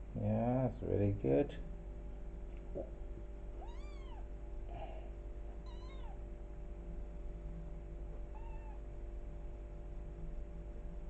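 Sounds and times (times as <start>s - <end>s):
low background hum: 0.0s - 11.0s
kitten mewing: 3.6s - 5.0s, 5.6s - 6.2s, 8.3s - 8.8s.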